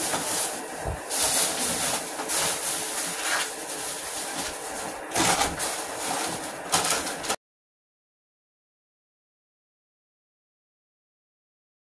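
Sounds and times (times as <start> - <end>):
plastic bag rustling: 0.0 - 7.4
steady mechanical hum: 0.0 - 7.4.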